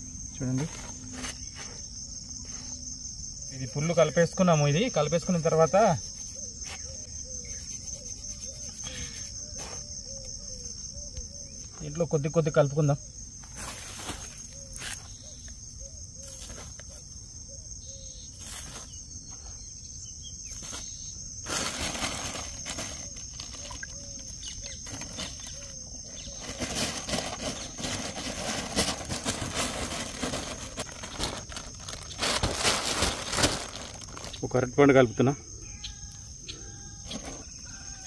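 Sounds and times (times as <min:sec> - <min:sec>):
crickets droning: 0:00.0 - 0:38.0
plastic crinkling and rustling: 0:21.5 - 0:24.2, 0:24.8 - 0:34.4.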